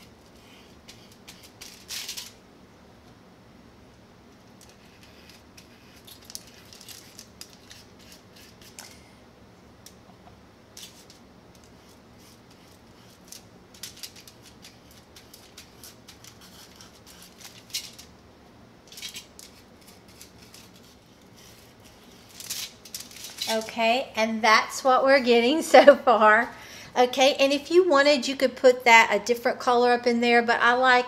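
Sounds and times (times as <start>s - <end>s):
aluminum foil crinkling: 0.0s - 2.4s, 4.4s - 9.1s, 10.8s - 18.1s, 18.8s - 24.0s
low room hum: 0.0s - 31.0s.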